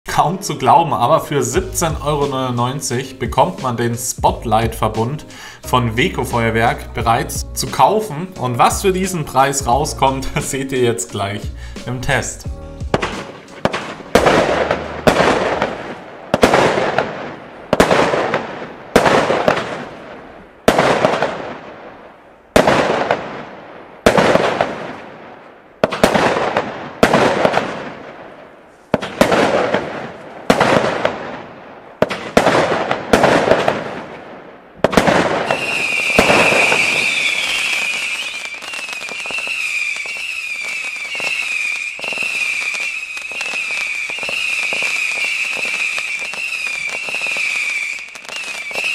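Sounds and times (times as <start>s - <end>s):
firework bangs: 12.8s - 48.9s
firework hiss: 35.4s - 48.9s
warbling high whistle: 35.5s - 48.9s.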